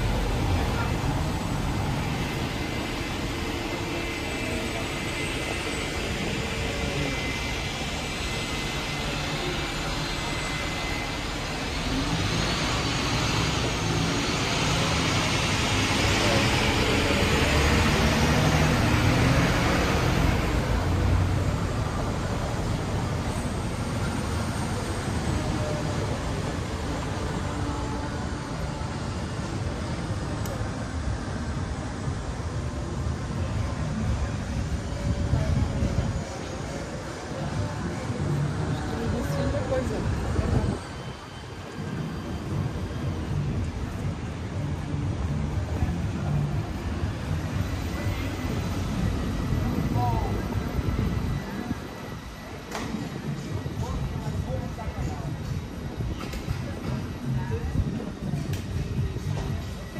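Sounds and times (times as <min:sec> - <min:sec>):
city street traffic: 0:00.0 - 0:59.9.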